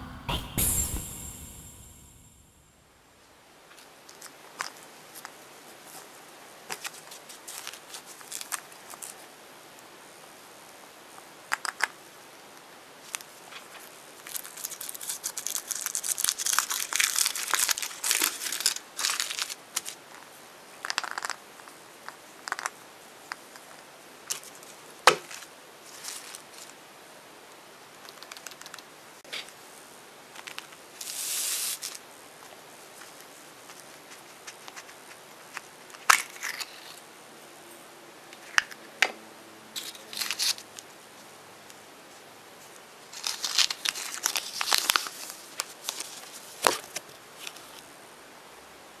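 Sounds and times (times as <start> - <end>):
foil wrapper crinkling and tearing: 6.7 - 9.2, 14.2 - 20.0, 43.1 - 47.8.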